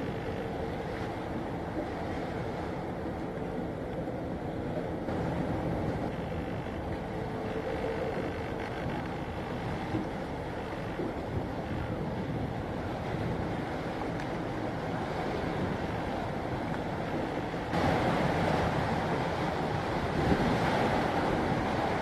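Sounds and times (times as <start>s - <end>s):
faint ship engine drone: 0.0s - 22.0s
river waves: 0.0s - 22.0s
wind buffeting microphone: 0.0s - 22.0s.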